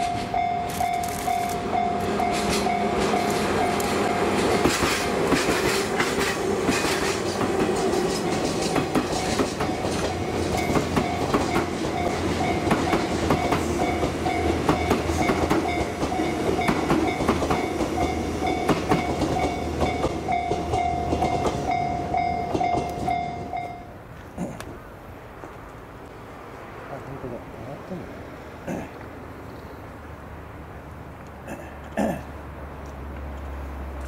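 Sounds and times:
steady high tone: 0:00.0 - 0:05.2
train wheels clacking over rail joints: 0:00.0 - 0:23.3.

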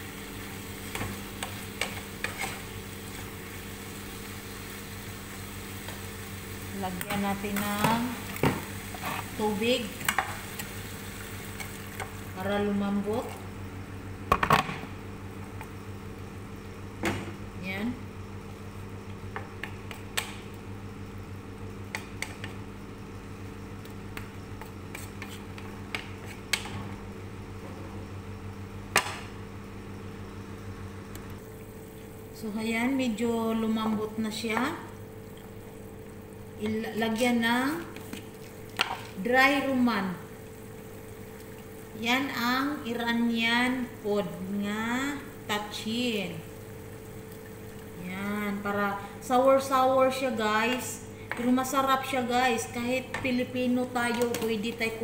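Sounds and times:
chicken sizzling in a pan: 0:00.0 - 0:13.0, 0:33.2 - 0:49.8
low steady hum: 0:00.0 - 0:55.0
spatula scraping frying pan: 0:00.9 - 0:03.2, 0:08.8 - 0:09.4.

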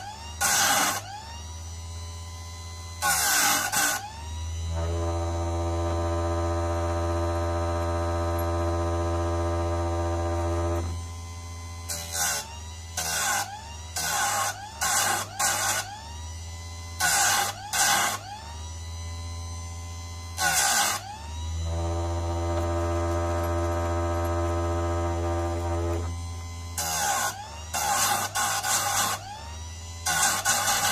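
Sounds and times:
grinder motor whining: 0:00.0 - 0:30.9
grinding wheel on steel: 0:21.6 - 0:26.2, 0:30.1 - 0:30.9.

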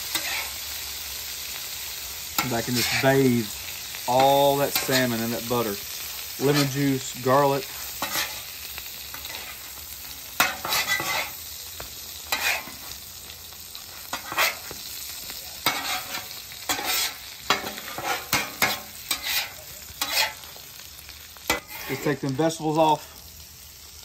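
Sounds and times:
fish sizzling on a griddle: 0:00.0 - 0:24.0
metal spatula scraping steel: 0:00.1 - 0:00.6, 0:02.4 - 0:03.2, 0:04.1 - 0:05.3, 0:06.4 - 0:08.5, 0:09.1 - 0:09.7, 0:10.4 - 0:11.4, 0:12.3 - 0:13.0, 0:14.1 - 0:14.7, 0:15.6 - 0:20.6, 0:21.5 - 0:22.3.

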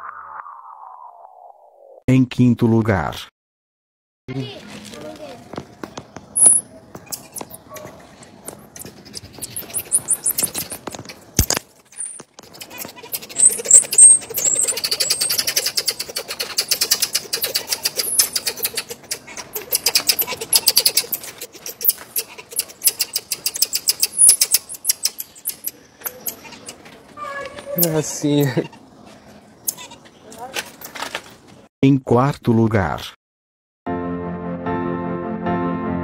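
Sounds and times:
marmosets chirping: 0:06.4 - 0:07.8, 0:08.8 - 0:11.2, 0:12.0 - 0:28.8.

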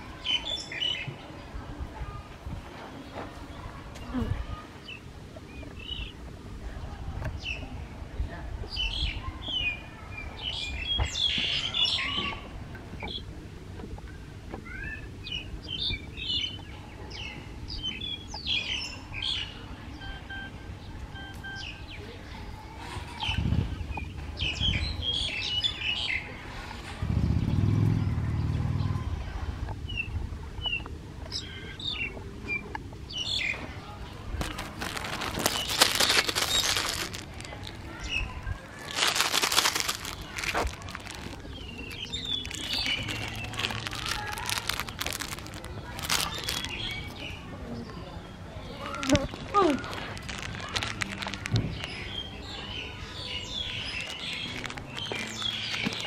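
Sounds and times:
small birds chirping: 0:14.0 - 0:56.0
scuffing and rustling: 0:34.4 - 0:37.9, 0:38.7 - 0:46.8.

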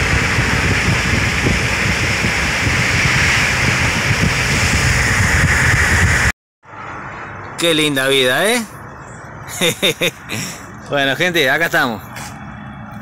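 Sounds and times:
wind rush on microphone: 0:00.0 - 0:06.3
car road rumble: 0:00.0 - 0:13.0.

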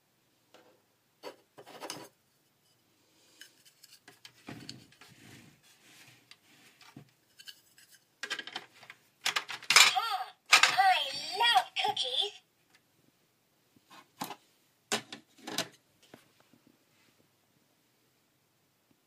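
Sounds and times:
plastic toy clicking: 0:09.2 - 0:11.0.

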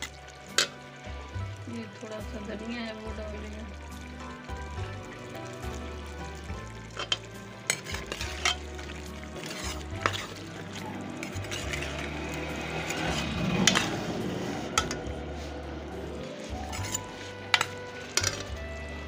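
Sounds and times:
vegetables sizzling in oil: 0:00.0 - 0:19.0
spoon knocking and scraping pot: 0:06.9 - 0:12.2, 0:12.9 - 0:14.1, 0:14.8 - 0:15.2, 0:16.4 - 0:18.6.

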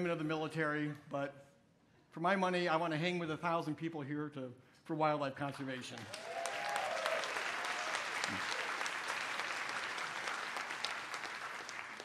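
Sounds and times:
large audience clapping: 0:05.8 - 0:12.0.

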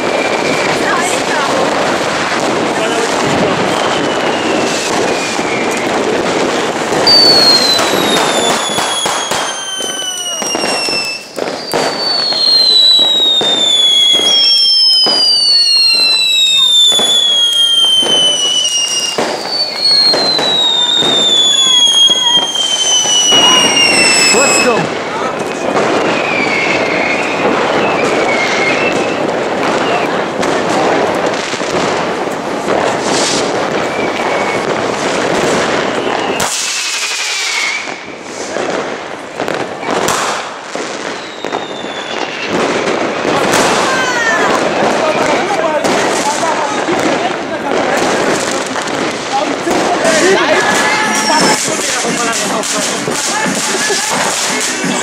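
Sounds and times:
firework fountains crackling: 0:00.0 - 0:55.0
sharp firework cracks: 0:00.0 - 0:55.0
firework whistle sliding down: 0:03.6 - 0:06.2, 0:06.9 - 0:24.8, 0:26.0 - 0:30.1, 0:33.0 - 0:38.6, 0:41.0 - 0:42.6, 0:50.7 - 0:51.8.

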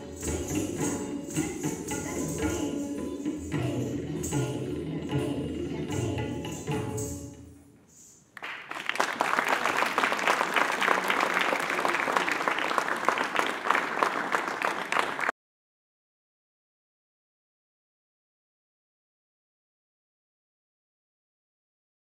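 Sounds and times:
dance accompaniment music: 0:00.0 - 0:07.3
audience applause: 0:08.4 - 0:15.3.

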